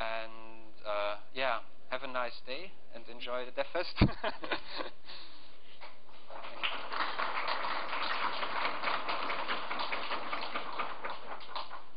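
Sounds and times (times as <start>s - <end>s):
audience applauding: 6.2s - 11.9s.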